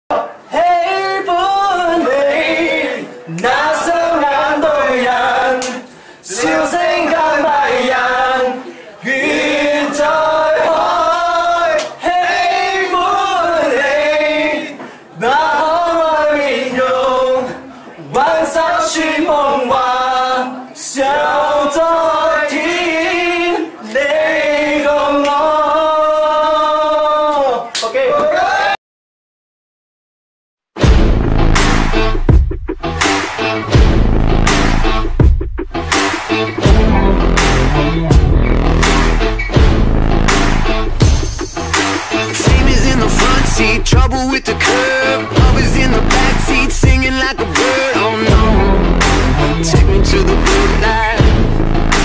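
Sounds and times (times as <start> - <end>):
man singing unaccompanied: 0.1 - 27.6, 42.1 - 51.4
men's voices singing: 0.5 - 27.5, 41.9 - 51.6
man singing loudly: 42.1 - 51.6.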